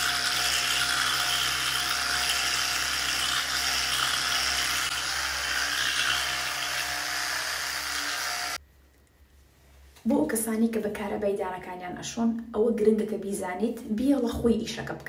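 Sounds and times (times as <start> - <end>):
electric toothbrush whirring: 0.0 - 8.6.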